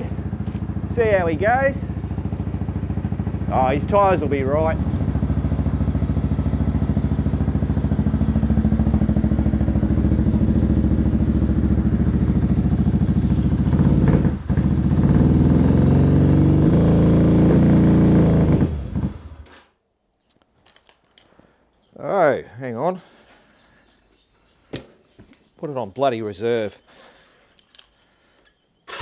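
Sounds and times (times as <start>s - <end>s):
motorcycle engine idling: 0.0s - 15.5s.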